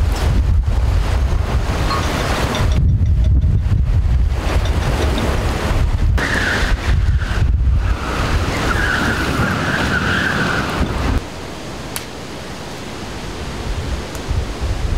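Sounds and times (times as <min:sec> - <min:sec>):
strong wind buffeting microphone: 0:00.0 - 0:11.7, 0:12.4 - 0:14.9.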